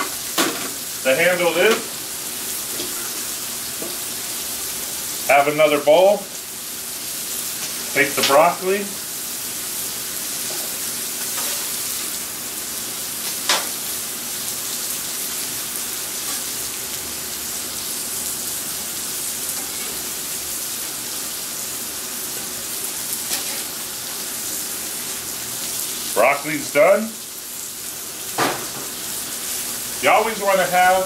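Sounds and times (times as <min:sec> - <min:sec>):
food sizzling on griddle: 0:00.0 - 0:31.0
metal spatula scraping griddle: 0:23.3 - 0:23.7.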